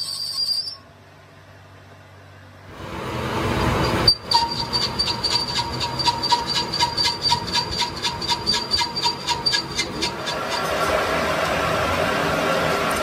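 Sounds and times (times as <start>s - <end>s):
pulsing metal-on-metal squeal: 0.0s - 0.9s, 3.5s - 12.0s
machinery rushing noise: 2.7s - 13.0s.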